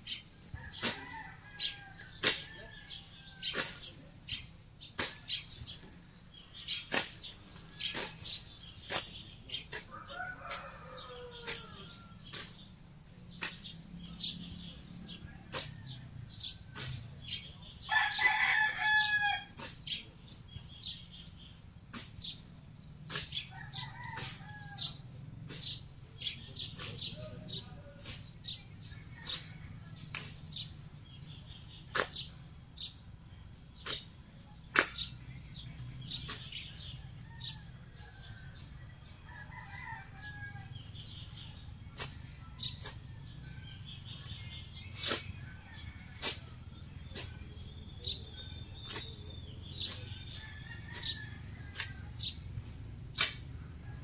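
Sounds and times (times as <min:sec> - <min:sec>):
blade whacking grass: 0:02.2 - 0:02.5, 0:03.5 - 0:03.9, 0:04.9 - 0:05.5, 0:06.6 - 0:09.9, 0:13.4 - 0:13.8, 0:15.5 - 0:15.8, 0:16.7 - 0:17.0, 0:30.1 - 0:30.4, 0:31.9 - 0:32.3, 0:34.7 - 0:35.2, 0:44.1 - 0:45.4, 0:48.8 - 0:49.2, 0:53.2 - 0:53.5.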